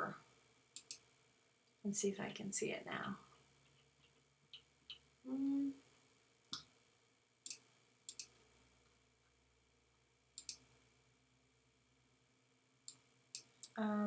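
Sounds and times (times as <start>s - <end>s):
computer mouse clicking: 0.8s - 1.0s, 7.5s - 8.4s, 10.4s - 10.6s.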